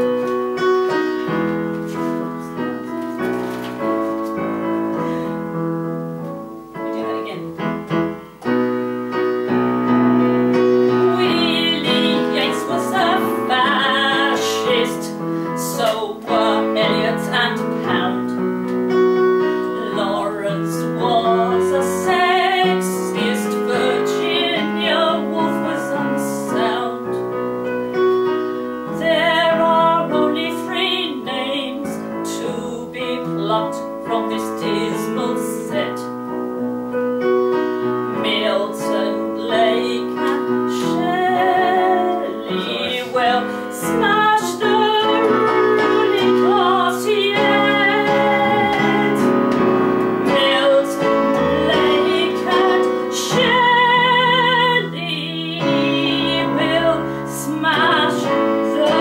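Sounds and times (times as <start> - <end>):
piano accompaniment: 0.0 - 59.0
woman singing a ballad: 10.5 - 18.5, 19.6 - 27.3, 28.8 - 36.2, 38.1 - 59.0.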